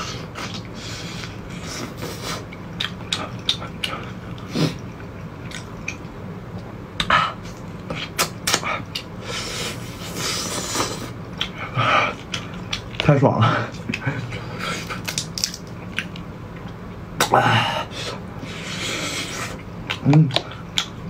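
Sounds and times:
chewing: 0:00.4 - 0:06.7, 0:10.0 - 0:13.1, 0:13.7 - 0:16.8, 0:18.6 - 0:21.0
shells crackling as peeled: 0:14.8 - 0:16.3.

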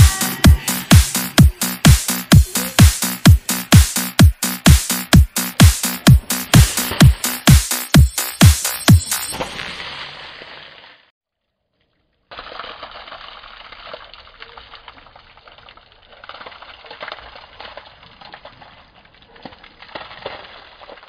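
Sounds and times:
water splashing on bicycle: 0:09.2 - 0:11.1, 0:12.1 - 0:21.0.

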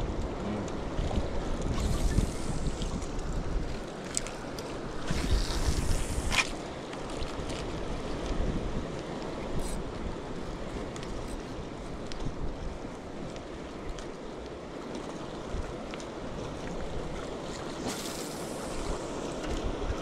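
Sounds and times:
wind buffeting microphone: 0:00.0 - 0:14.0
sea washing around boat: 0:00.0 - 0:20.0.

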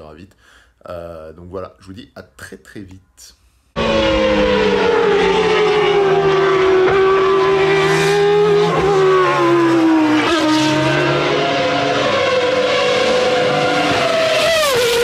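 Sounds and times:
racing engine revving: 0:03.8 - 0:15.0.

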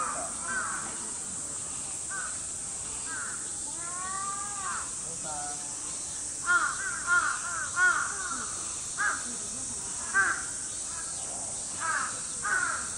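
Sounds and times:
crows cawing: 0:00.0 - 0:01.0, 0:06.4 - 0:09.3, 0:10.1 - 0:11.1, 0:11.8 - 0:12.9.

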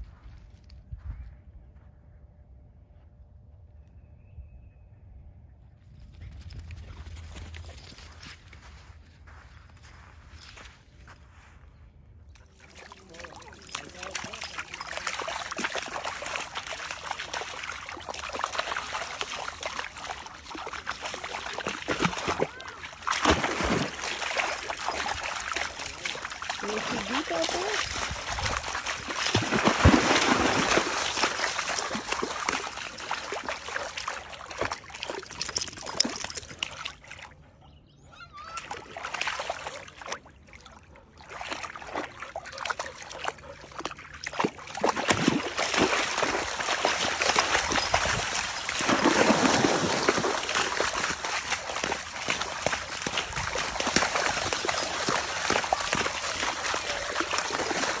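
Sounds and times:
dog splashing through water: 0:12.4 - 0:37.3, 0:38.5 - 0:58.0.

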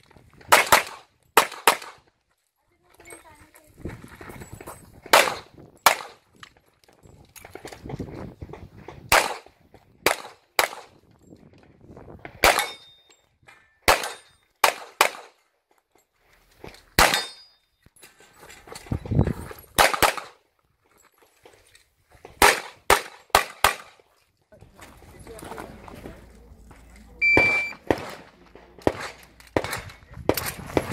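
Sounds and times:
pistol shots: 0:00.5 - 0:02.0, 0:05.1 - 0:06.2, 0:09.1 - 0:10.9, 0:12.4 - 0:12.9, 0:13.9 - 0:15.4, 0:17.0 - 0:17.4, 0:19.8 - 0:20.4, 0:22.4 - 0:24.0, 0:27.4 - 0:30.9.

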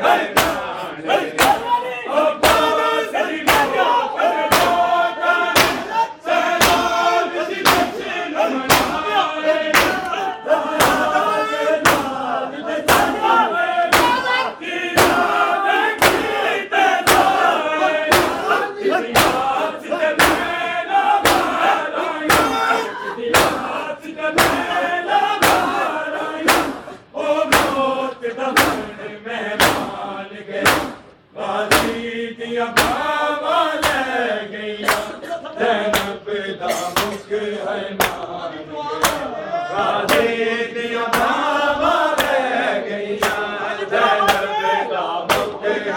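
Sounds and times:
men chanting in unison: 0:00.0 - 0:45.9
hands slapping bare chests: 0:00.3 - 0:00.6, 0:04.5 - 0:04.8, 0:05.6 - 0:05.9, 0:06.6 - 0:07.0, 0:08.7 - 0:09.0, 0:09.7 - 0:10.2, 0:16.0 - 0:16.3, 0:19.2 - 0:19.5, 0:26.4 - 0:26.8, 0:30.6 - 0:31.1, 0:32.8 - 0:33.0, 0:33.8 - 0:34.1, 0:34.8 - 0:35.2, 0:38.0 - 0:38.2, 0:39.0 - 0:39.3, 0:41.1 - 0:41.4, 0:42.1 - 0:42.4, 0:43.2 - 0:43.5, 0:45.3 - 0:45.6.

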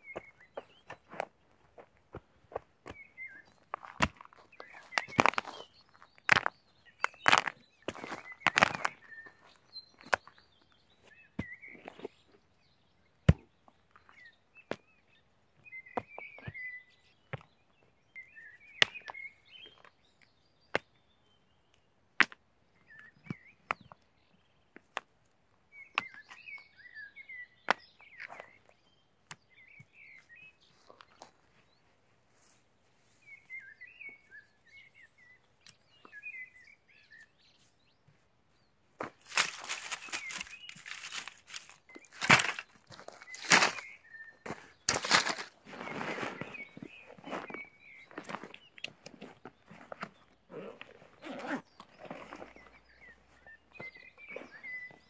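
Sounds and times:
birds chirping: 0:00.0 - 0:55.0
stones knocking together: 0:03.7 - 0:09.0, 0:39.0 - 0:43.9, 0:44.9 - 0:45.6.

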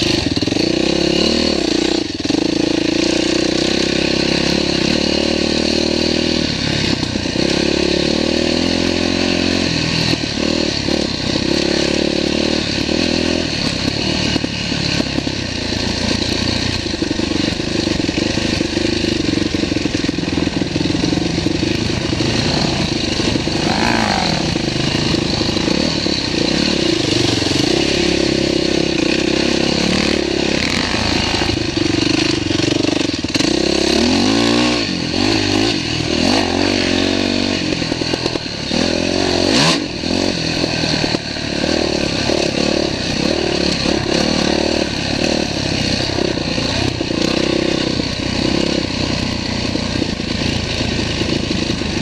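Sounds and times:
dirt bike engine revving: 0:00.0 - 0:52.0
clatter over rocky ground: 0:37.6 - 0:52.0.

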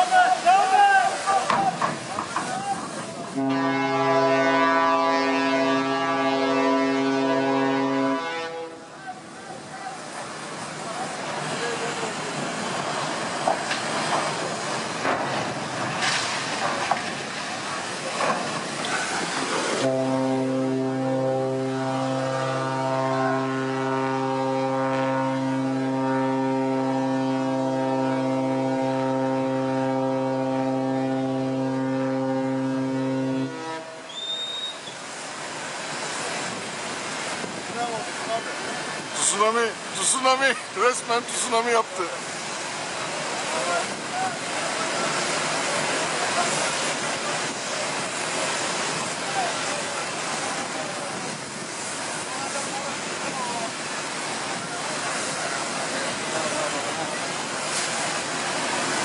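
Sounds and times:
ship's horn blast: 0:02.8 - 0:09.3, 0:19.4 - 0:34.9.

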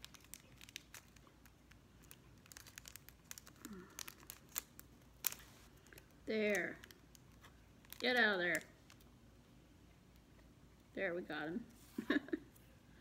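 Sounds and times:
plastic clicks and crinkles: 0:00.0 - 0:09.1.

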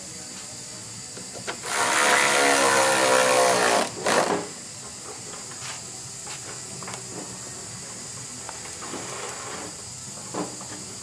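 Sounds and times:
power ratchet whining: 0:01.5 - 0:04.5.

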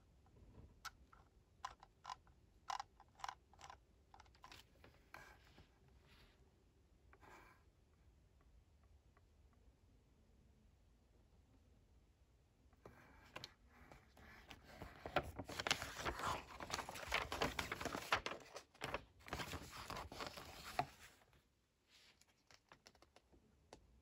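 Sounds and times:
book page rustling: 0:13.2 - 0:21.4.

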